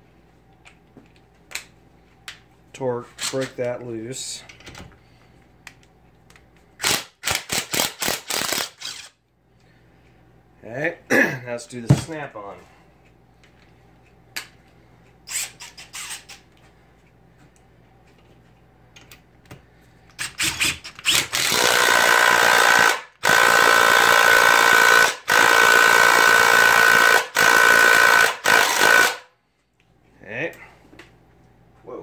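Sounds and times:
impact wrench hammering: 20.3 - 29.2.

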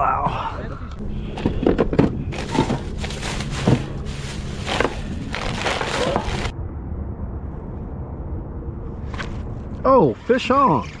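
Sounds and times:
low rumble: 0.8 - 9.9
plastic bag crinkling: 2.4 - 6.5.

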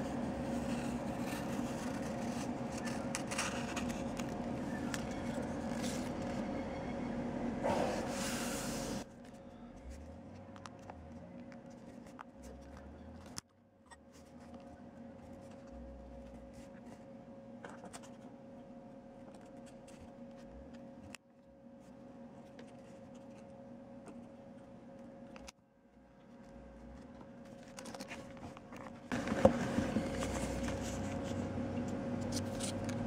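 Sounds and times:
low hum: 0.0 - 33.0.

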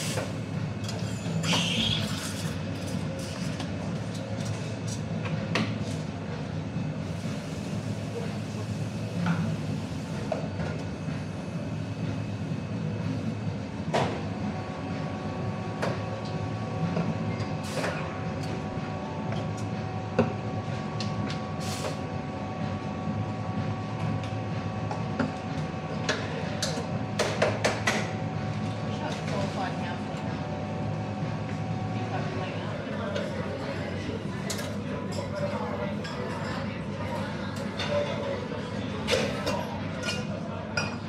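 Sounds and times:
espresso machine rumble: 0.0 - 4.8.

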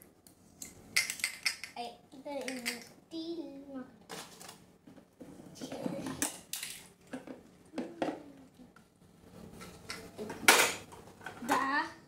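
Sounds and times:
plastic toy dishes clattering: 2.4 - 2.9.

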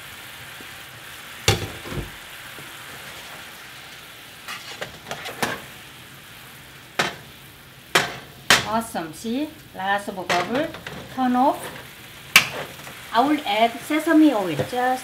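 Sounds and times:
sauce bubbling and sizzling in pan: 0.0 - 15.0
spatula knocking and scraping pan: 1.5 - 2.1, 4.5 - 5.7, 7.0 - 7.3, 7.9 - 8.8, 10.2 - 13.0, 14.4 - 15.0.

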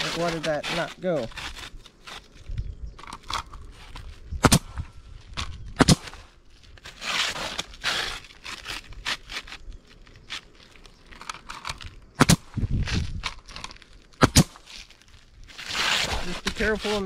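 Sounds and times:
roofing material rustling and scraping: 0.0 - 4.3, 6.0 - 12.0, 12.9 - 17.0
small crackles: 5.2 - 12.2, 13.0 - 17.0.

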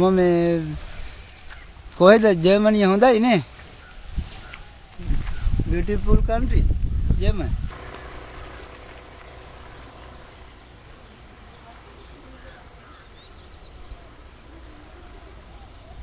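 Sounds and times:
insects droning: 0.0 - 16.0
faint chirps: 8.3 - 16.0.

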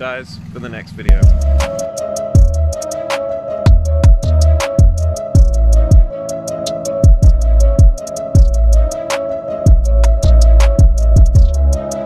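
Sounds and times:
deep bass drum hits: 1.1 - 1.7, 2.4 - 2.8, 3.7 - 6.1, 7.0 - 8.9, 9.7 - 11.8
hi-hat ticks: 1.1 - 11.9.

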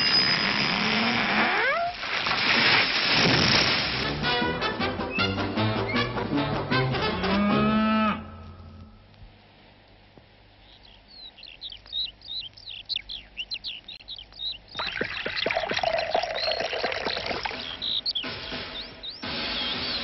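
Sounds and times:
small birds chirping: 10.4 - 20.0.

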